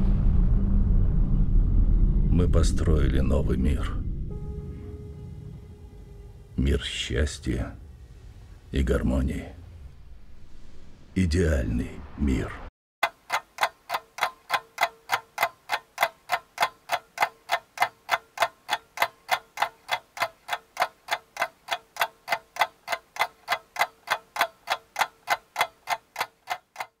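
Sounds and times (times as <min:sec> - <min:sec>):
faint steady hum: 0:01.4 - 0:11.2
rapid clock ticking: 0:13.0 - 0:27.0.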